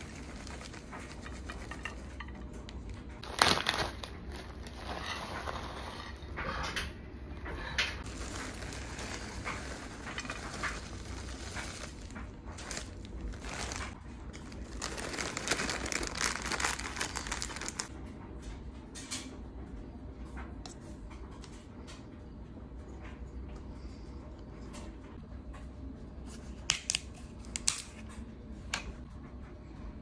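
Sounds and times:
plastic bags crinkling: 0:03.2 - 0:06.0, 0:08.0 - 0:17.9.

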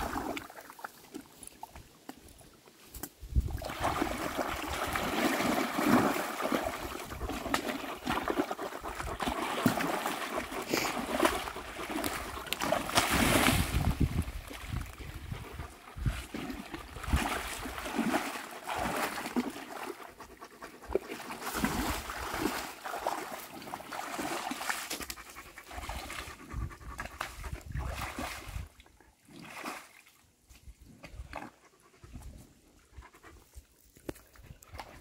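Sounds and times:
water splashing from hose: 0:00.0 - 0:01.6, 0:03.4 - 0:20.0, 0:21.0 - 0:25.1
animal panting: 0:10.3 - 0:12.3, 0:19.9 - 0:21.5, 0:24.8 - 0:27.7, 0:31.5 - 0:33.9.

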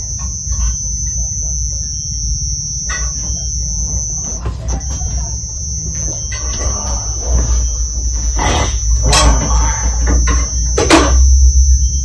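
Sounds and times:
high-pitched whine: 0:00.0 - 0:12.0
low hum: 0:00.0 - 0:12.0
faint indistinct voices: 0:02.9 - 0:10.7.

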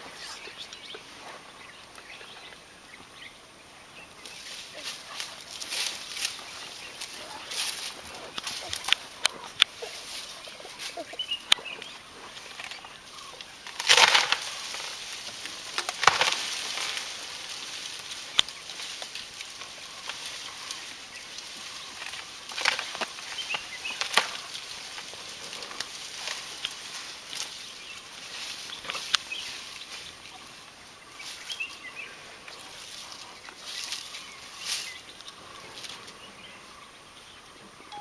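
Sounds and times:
branches rustling: 0:00.0 - 0:38.0
tree wood cracking: 0:10.8 - 0:30.0.

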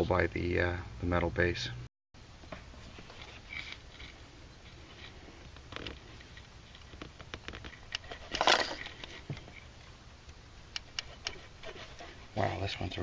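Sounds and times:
rubber and wiring clicks and rustles: 0:04.9 - 0:09.7
loud rustling scrape: 0:11.1 - 0:12.6.

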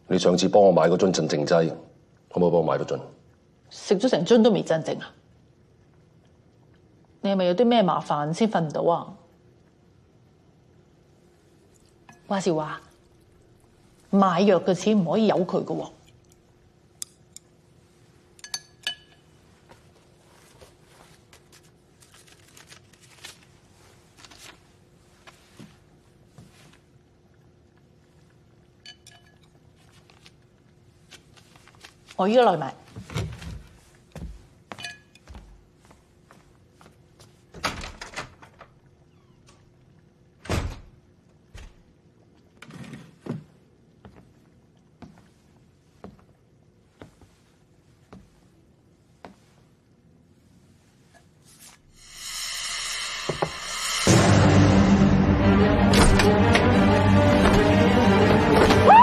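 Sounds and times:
chopsticks clinking ceramic bowl: 0:18.4 - 0:19.3, 0:28.8 - 0:29.6, 0:34.7 - 0:35.3
banknote rustling: 0:21.0 - 0:24.6
door shutting hard: 0:40.4 - 0:40.9, 0:55.8 - 0:59.0
chair scraping back: 0:42.6 - 0:43.4.

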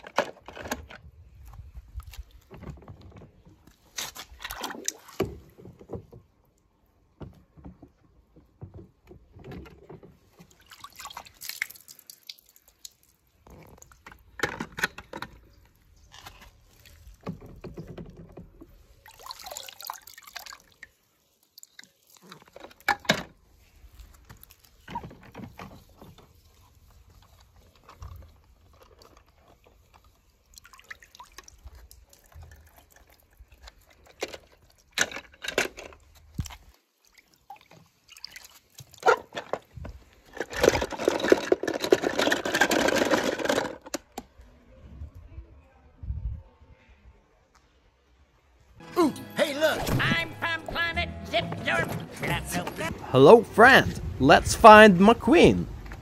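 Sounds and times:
water splashing in plastic tub: 0:01.9 - 0:06.4, 0:07.4 - 0:14.6, 0:16.5 - 0:35.2, 0:35.8 - 0:41.5
water dripping: 0:10.5 - 0:14.0, 0:19.0 - 0:22.6, 0:29.9 - 0:34.0.

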